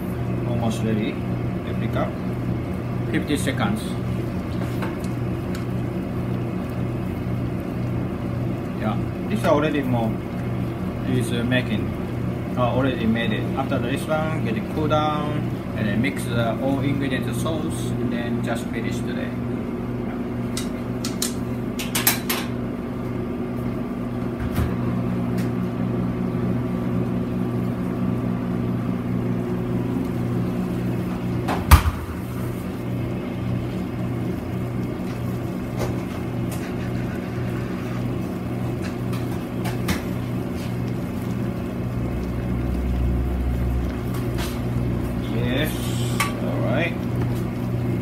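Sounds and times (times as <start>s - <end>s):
electrical hum of kitchen equipment: 0.0s - 48.0s.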